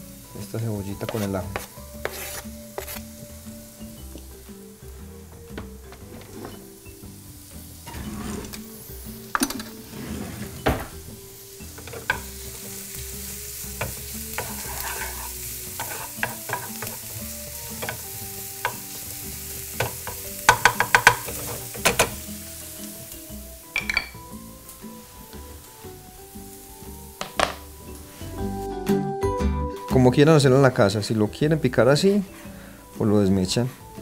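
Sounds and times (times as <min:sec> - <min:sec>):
onion and garlic sizzling in butter: 0:00.0 - 0:28.8
wooden spoon scraping and tapping pan: 0:01.0 - 0:03.1, 0:13.8 - 0:17.0, 0:19.8 - 0:22.2.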